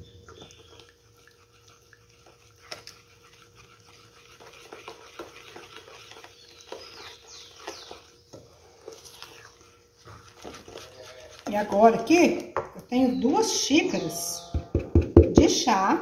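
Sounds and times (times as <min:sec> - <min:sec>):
spoon scraping metal bowl: 0:00.4 - 0:12.4, 0:13.0 - 0:15.2
high falling squeaky calls: 0:12.9 - 0:14.8
spoon knocking against metal: 0:14.4 - 0:15.6.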